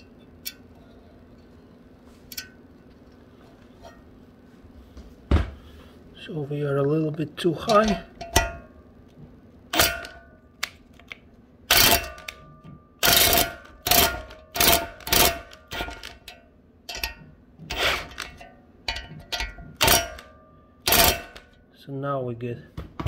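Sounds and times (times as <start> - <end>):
metal clinks and taps: 7.6 - 8.7, 18.4 - 20.3.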